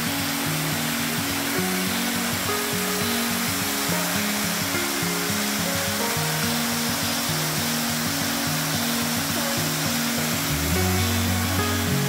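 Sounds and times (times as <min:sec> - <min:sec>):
background music with held notes: 0:00.0 - 0:12.0
waterfall rushing: 0:00.0 - 0:12.0.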